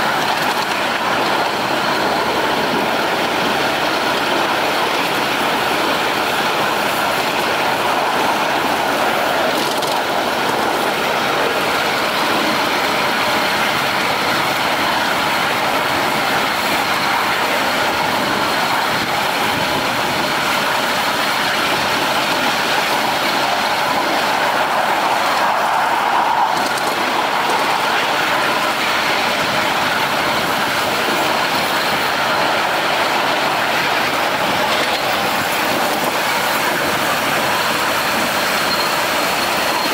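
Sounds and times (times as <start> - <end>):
miniature train wheels rattling on rails: 0.0 - 39.9.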